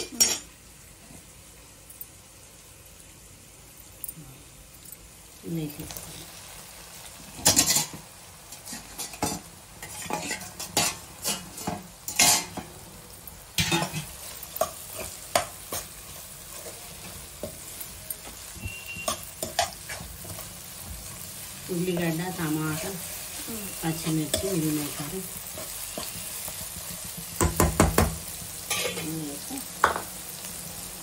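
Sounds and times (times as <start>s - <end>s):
low sizzle of frying: 0.0s - 31.0s
spoon scraping a wok: 7.4s - 12.8s, 13.6s - 27.9s, 28.5s - 29.2s.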